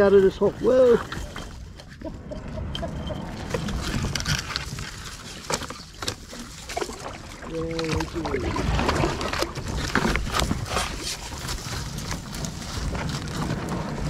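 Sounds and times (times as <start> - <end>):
hands pushing along bark: 0.0 - 14.0
rustling scraping and knocking: 0.0 - 14.0
twigs dragging over life jacket: 3.1 - 14.0.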